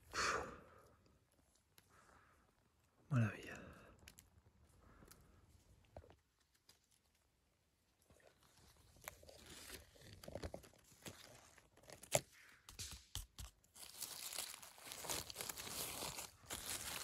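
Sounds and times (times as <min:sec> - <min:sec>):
twig cracking: 0:03.9 - 0:07.2, 0:08.8 - 0:17.0
dry leaves crunching and rustling: 0:13.8 - 0:17.0.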